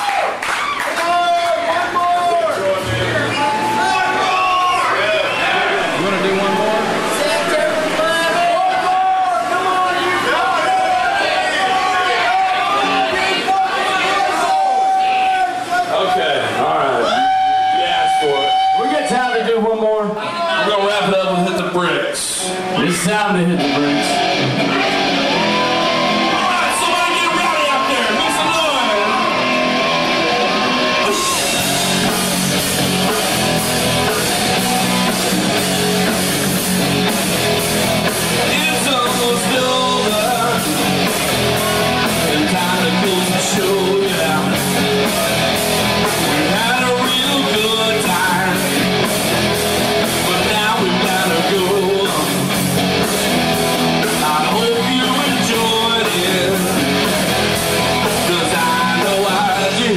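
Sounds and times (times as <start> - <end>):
guitar: 1.6 - 59.9
rock band playing live: 2.8 - 10.8, 21.0 - 59.9
drums keeping a steady beat: 5.4 - 9.1, 29.3 - 59.9
person singing: 42.1 - 44.6, 50.2 - 52.4, 54.1 - 56.9.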